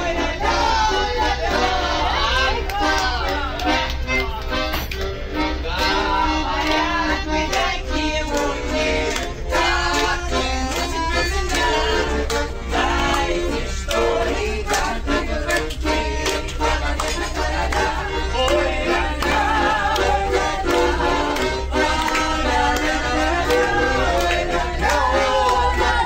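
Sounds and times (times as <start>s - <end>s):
accordion playing lively tune: 0.0s - 26.0s
women singing: 5.9s - 16.2s, 17.1s - 26.0s.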